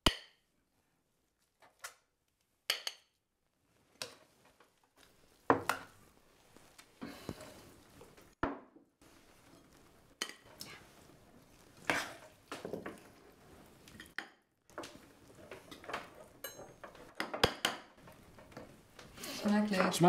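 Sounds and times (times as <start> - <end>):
cutlery clinking against plates: 15.7 - 17.9.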